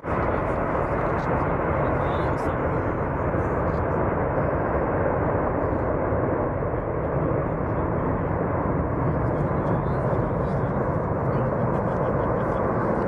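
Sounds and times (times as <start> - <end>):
jet engines rumbling: 0.0 - 13.0.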